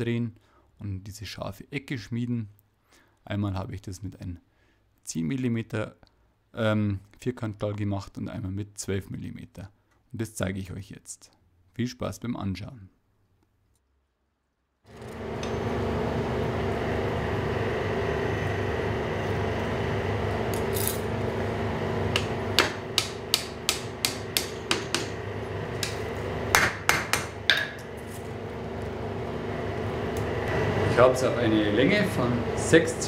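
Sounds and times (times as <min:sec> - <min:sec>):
steady background hum: 0:14.9 - 0:33.0
hammer striking hot steel on anvil: 0:22.1 - 0:28.0.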